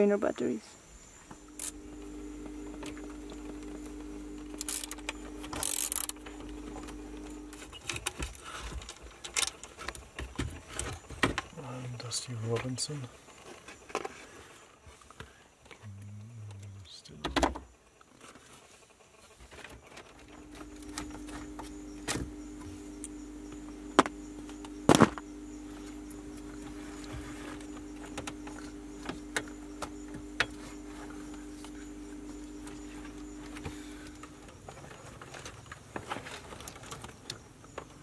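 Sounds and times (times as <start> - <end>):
steady hum: 0.0 - 18.0, 18.8 - 37.1.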